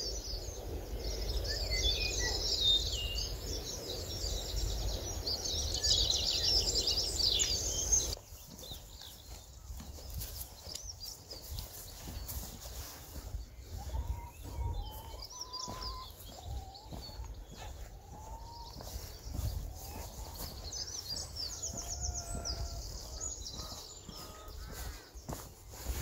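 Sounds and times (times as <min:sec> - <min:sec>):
songbirds singing: 0:00.0 - 0:26.0
bird trill: 0:12.7 - 0:24.9.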